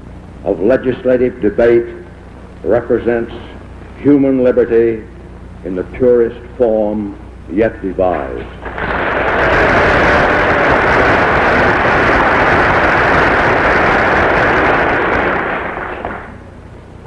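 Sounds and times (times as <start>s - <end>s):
audience applauding: 8.6s - 16.4s.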